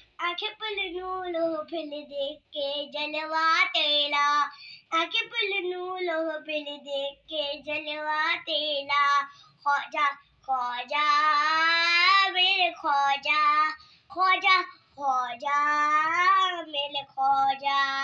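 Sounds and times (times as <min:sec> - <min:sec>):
boy singing solo: 0:00.2 - 0:18.0.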